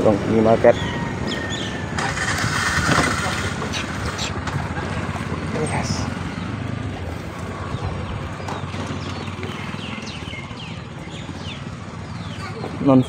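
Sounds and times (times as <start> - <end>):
motorcycle engine puttering: 0.0 - 13.0.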